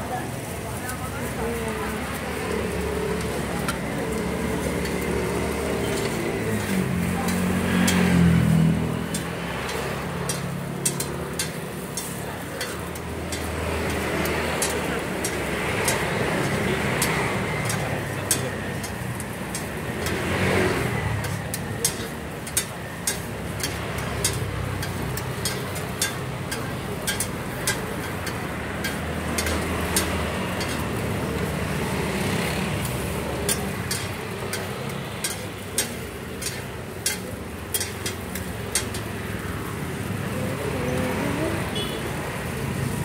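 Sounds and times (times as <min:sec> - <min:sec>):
metal spatulas clacking on griddle: 0:04.5 - 0:05.0, 0:05.8 - 0:31.7, 0:32.8 - 0:39.4.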